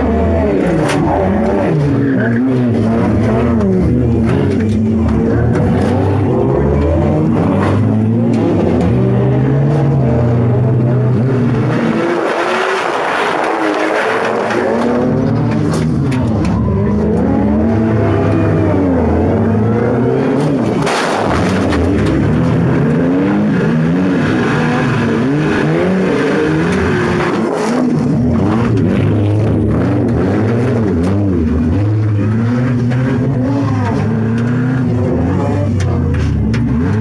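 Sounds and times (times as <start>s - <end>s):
car engine revving: 0.0s - 37.0s.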